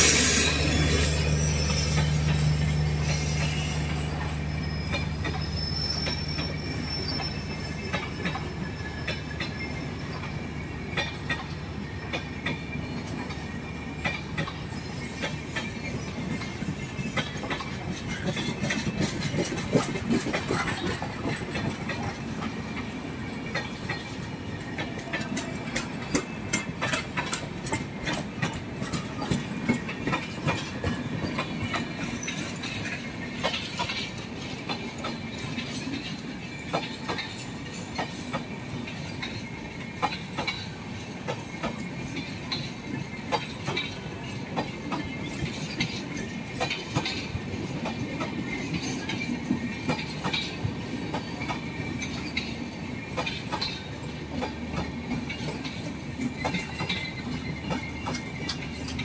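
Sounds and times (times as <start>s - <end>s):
high wheel squeal: 0.0s - 23.4s
train wheel rumble: 0.0s - 59.0s
wheels clacking over rail joints: 14.0s - 59.0s.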